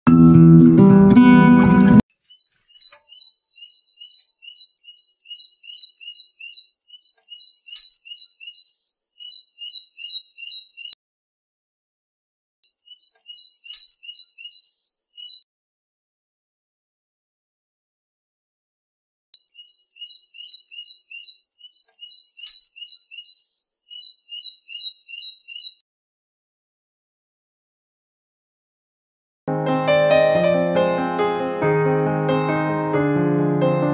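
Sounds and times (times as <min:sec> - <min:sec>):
great tit singing two-note song: 0:12.8 - 0:15.4
sharp click: 0:13.7 - 0:14.0, 0:22.4 - 0:22.7.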